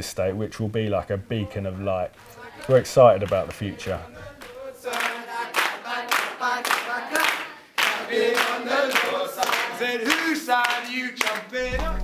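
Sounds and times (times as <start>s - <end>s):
group singing: 2.2s - 12.0s
hands clapping in time: 4.4s - 12.0s.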